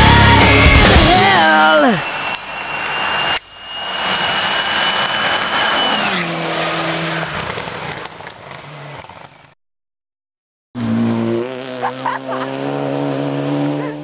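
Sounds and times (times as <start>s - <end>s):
rally car speeding past: 10.8s - 14.0s.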